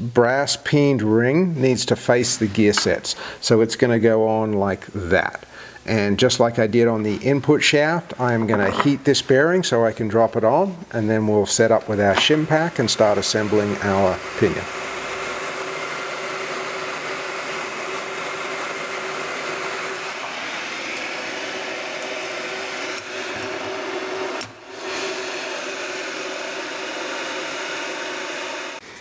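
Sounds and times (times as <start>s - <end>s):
hot air gun blowing: 11.0s - 29.0s.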